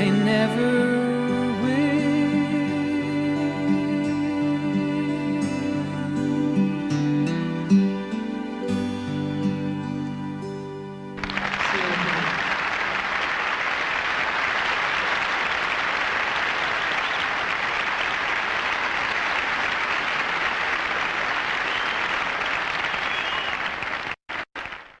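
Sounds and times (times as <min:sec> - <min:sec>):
audience applauding: 0:11.2 - 0:25.0.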